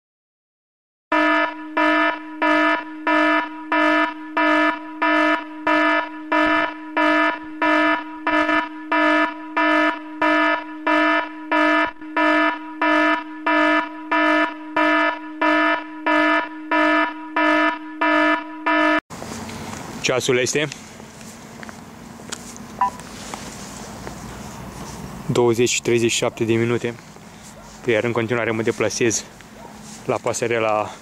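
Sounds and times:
electronic alarm beeping: 1.1s - 19.0s, 22.8s - 23.0s.

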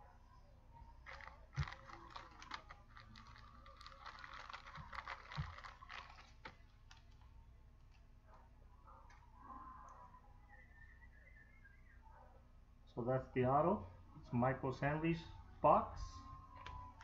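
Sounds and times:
crackly rustle: 0.8s - 8.1s.

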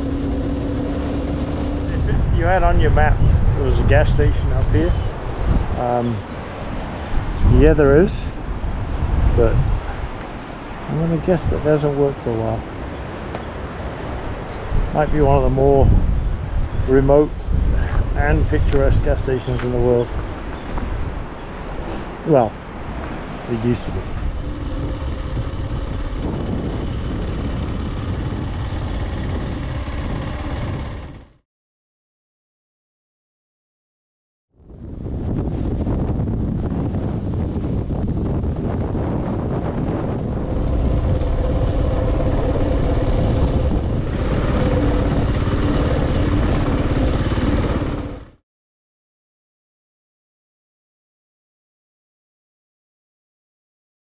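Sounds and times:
motorcycle riding on gravel: 0.0s - 3.0s, 24.1s - 31.4s, 39.7s - 48.4s
wind rumble on microphone: 0.0s - 31.4s, 34.6s - 48.4s.

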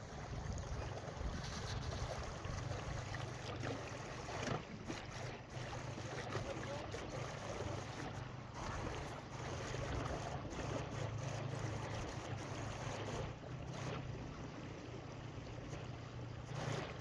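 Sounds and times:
wind buffeting microphone: 0.0s - 3.1s.

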